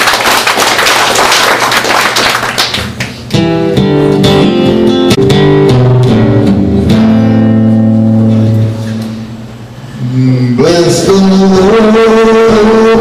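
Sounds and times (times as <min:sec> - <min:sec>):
acoustic guitar strumming: 0:03.2 - 0:13.0.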